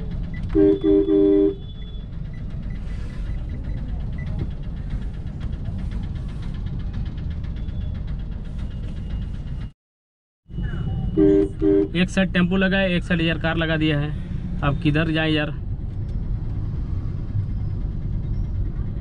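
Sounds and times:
low rumble of street traffic: 0:00.0 - 0:09.8, 0:10.4 - 0:19.0
car horn honking: 0:00.5 - 0:01.8, 0:11.1 - 0:12.0.

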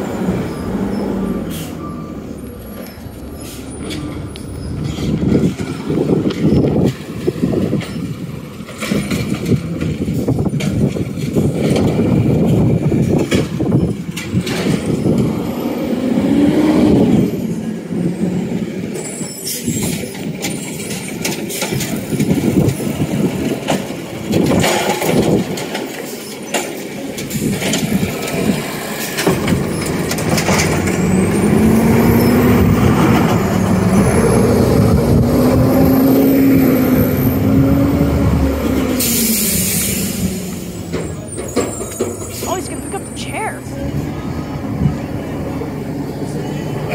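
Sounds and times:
truck diesel engine revving: 0:00.0 - 0:26.2, 0:26.9 - 0:46.9
air brakes hiss: 0:39.0 - 0:40.5.

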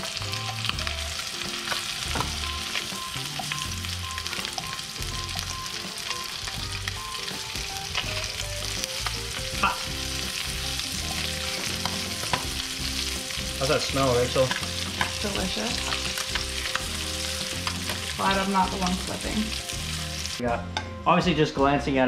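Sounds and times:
fish sizzling in butter: 0:00.0 - 0:20.4.

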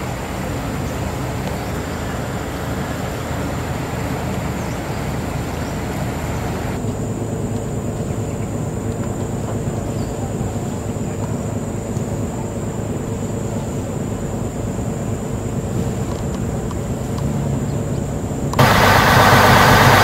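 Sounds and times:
water and air hiss: 0:00.0 - 0:06.8, 0:18.6 - 0:20.0
boat engine drone: 0:00.0 - 0:20.0.

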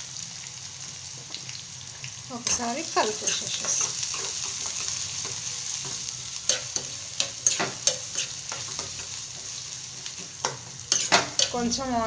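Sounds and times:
onions sizzling in hot oil: 0:00.0 - 0:12.0.

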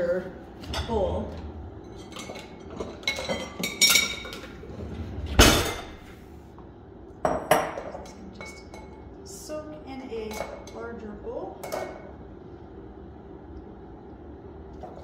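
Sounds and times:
dishes clinking and knocking: 0:00.6 - 0:04.7, 0:05.3 - 0:06.2, 0:07.2 - 0:09.0, 0:11.6 - 0:12.1.

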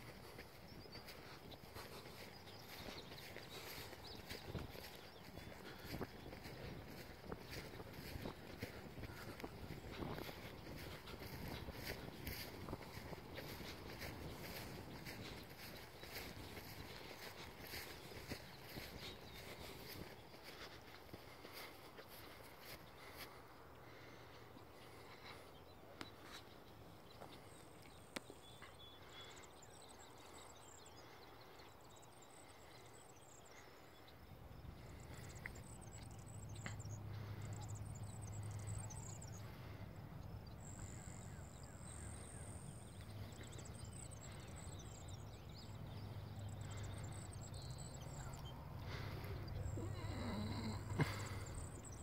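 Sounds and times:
insects trilling: 0:46.5 - 0:52.0.

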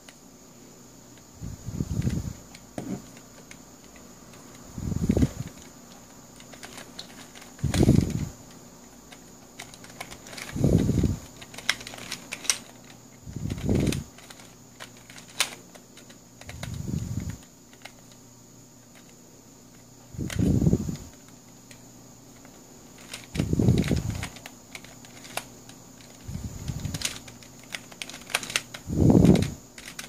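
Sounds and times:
plastic puzzle pieces clicking: 0:05.5 - 0:08.0, 0:09.0 - 0:10.6, 0:11.2 - 0:18.2, 0:21.1 - 0:30.0.

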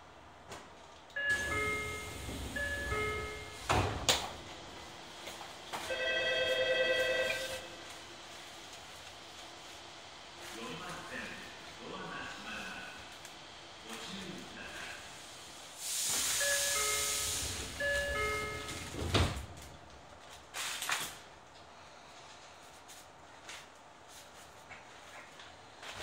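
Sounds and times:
train doors shutting thump: 0:01.3 - 0:04.6, 0:16.0 - 0:19.8
air hissing from door engines: 0:01.3 - 0:05.6, 0:08.0 - 0:19.7.

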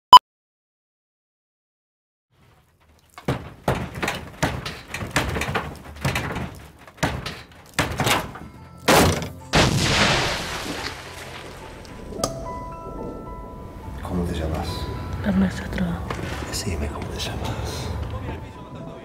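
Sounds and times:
heavy thuds and knocks: 0:03.0 - 0:10.1.

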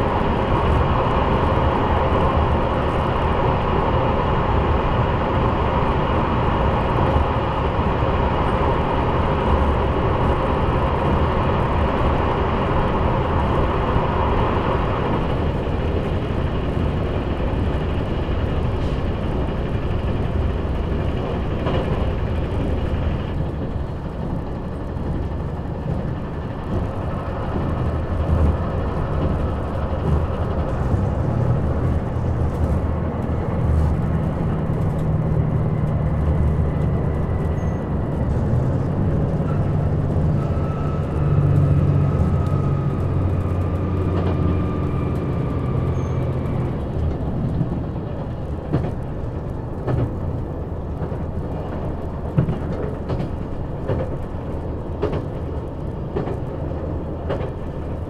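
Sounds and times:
deep diesel engine drone: 0:00.0 - 0:58.0
wheel and rail noise: 0:00.0 - 0:58.0
whining gear tone: 0:34.8 - 0:47.7.

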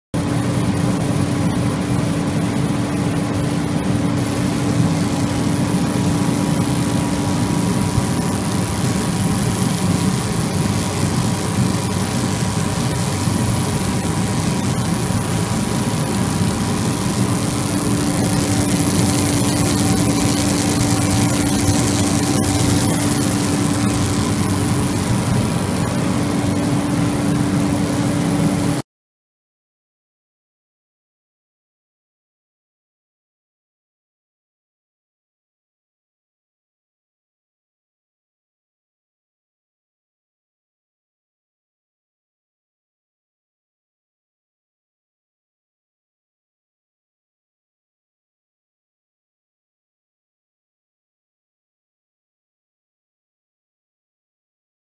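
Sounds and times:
faint high whine: 0:00.2 - 0:28.8
laser machine roaring: 0:00.2 - 0:28.8
low hum: 0:00.2 - 0:28.8.

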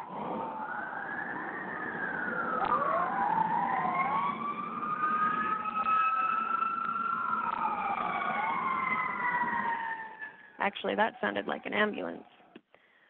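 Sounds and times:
emergency vehicle siren wailing: 0:00.0 - 0:10.6.

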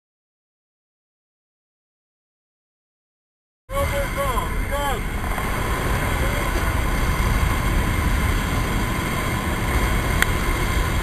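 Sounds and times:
plane engine drone in cabin: 0:03.7 - 0:11.0.

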